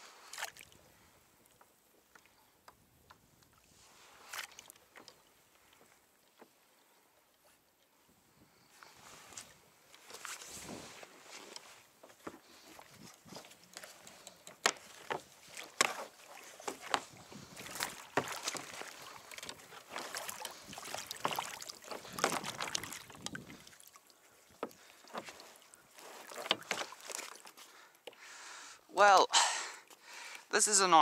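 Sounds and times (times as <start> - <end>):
water slapping against kayak: 11.6 - 28.2.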